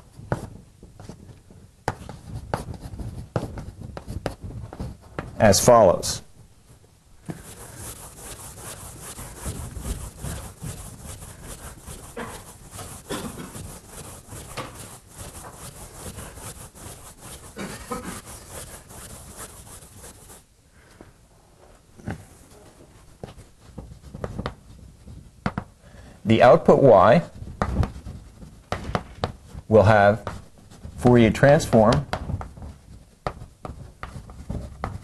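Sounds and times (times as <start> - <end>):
chalk scratching on blackboard: 1.9 - 5.4, 7.3 - 20.4, 23.2 - 25.6, 26.5 - 35.0.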